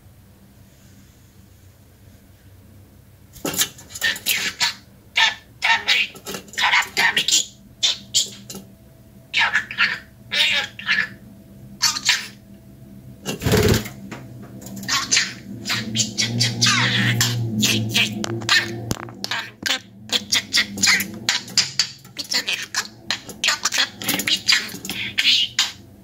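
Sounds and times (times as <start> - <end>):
budgerigar mimicking words: 3.9 - 8.5, 9.3 - 11.2, 11.8 - 12.4, 14.8 - 25.8
budgerigar chirping: 4.0 - 8.5.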